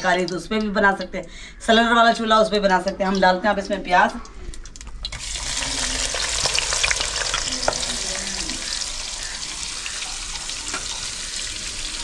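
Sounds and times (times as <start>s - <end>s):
onions sizzling in hot fat: 5.0s - 12.0s.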